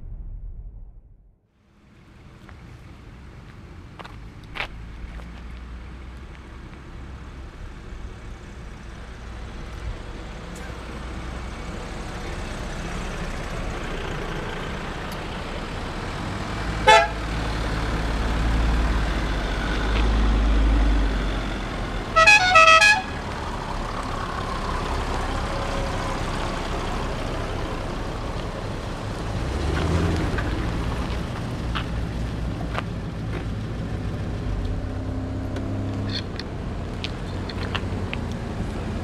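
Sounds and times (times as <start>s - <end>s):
off-road vehicles driving past: 1.6s - 39.0s
tyres on road: 1.6s - 39.0s
car horn toots: 16.8s - 17.2s, 22.2s - 23.2s.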